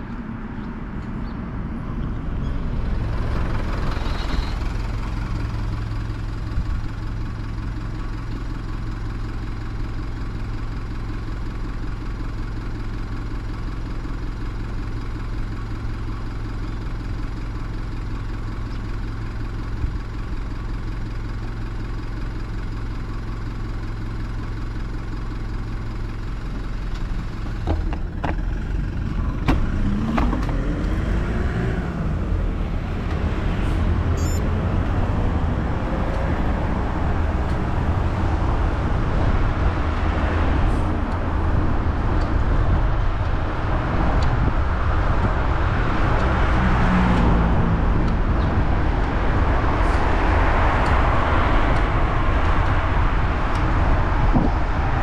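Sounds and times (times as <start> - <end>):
road and wind noise: 0.0 - 55.0
vehicle engine idling: 0.0 - 55.0
engine rising in pitch: 28.9 - 40.9.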